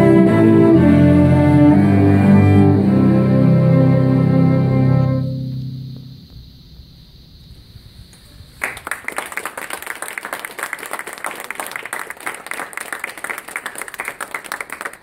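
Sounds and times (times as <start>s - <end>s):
cello and double bass piece: 0.0s - 6.4s
audience applauding: 8.6s - 15.0s.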